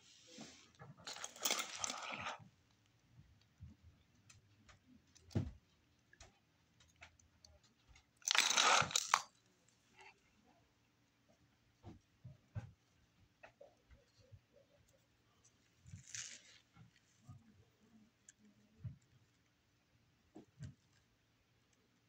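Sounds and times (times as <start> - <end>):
needle sewing fabric rustles: 15.6 - 17.4.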